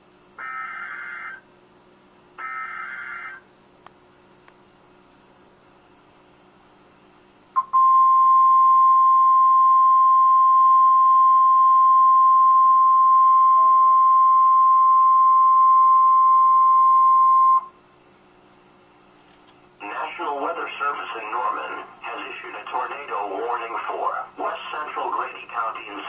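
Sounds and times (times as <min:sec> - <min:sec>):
steady alarm tone: 0:02.4 - 0:03.4.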